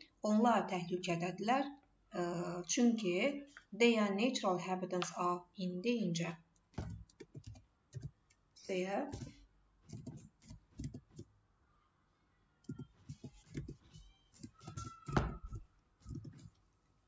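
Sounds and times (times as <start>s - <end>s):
keyboard typing: 6.8s - 8.3s, 9.1s - 11.3s, 12.6s - 16.6s.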